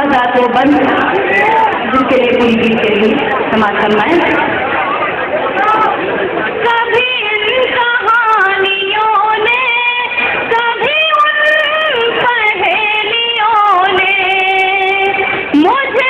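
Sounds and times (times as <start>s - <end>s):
woman singing: 6.6s - 16.0s.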